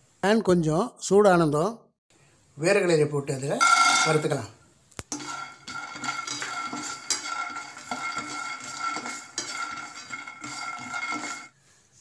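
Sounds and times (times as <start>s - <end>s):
peanuts rattling in a pan: 5.1s - 11.5s
spatula scraping a pan: 5.1s - 11.6s.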